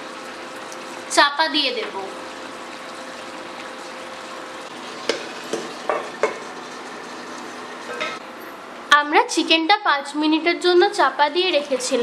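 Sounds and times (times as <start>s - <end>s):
chicken sizzling in a frying pan: 0.0s - 8.2s.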